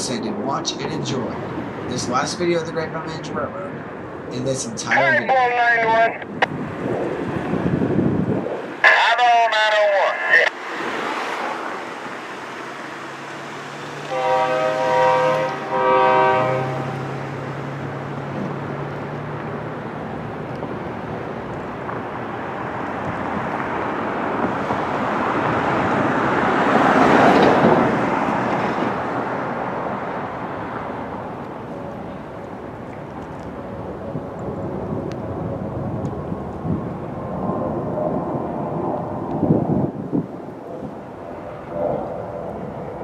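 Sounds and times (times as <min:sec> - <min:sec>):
vehicle passing rumble: 0:00.0 - 0:43.0
air horn blasts: 0:14.1 - 0:17.2.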